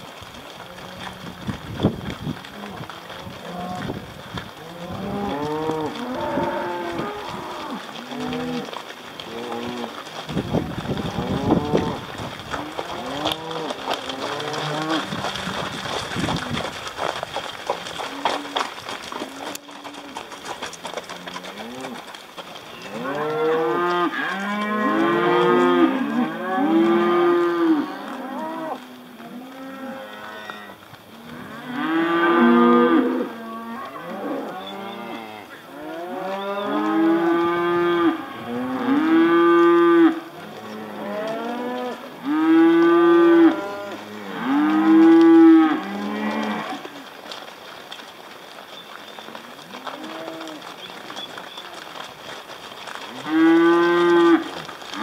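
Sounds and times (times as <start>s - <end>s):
cattle mooing: 4.6s - 16.7s, 22.8s - 47.0s, 49.6s - 51.8s, 53.1s - 55.0s.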